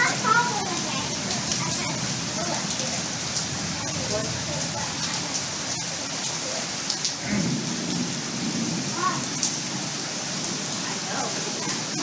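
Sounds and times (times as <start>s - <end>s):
steady rain falling: 0.0s - 12.0s
low rumble of thunder: 7.2s - 10.7s.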